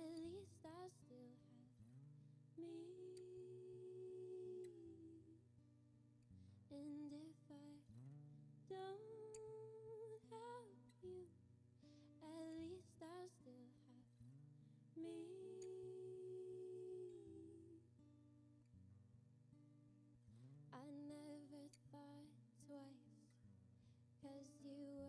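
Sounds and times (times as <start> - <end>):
woman singing wordless phrases: 0.0 - 1.8, 2.6 - 5.5, 6.7 - 8.0, 8.7 - 11.3, 12.2 - 14.1, 14.9 - 17.9, 20.8 - 23.4, 24.2 - 25.0
acoustic guitar: 0.0 - 25.0.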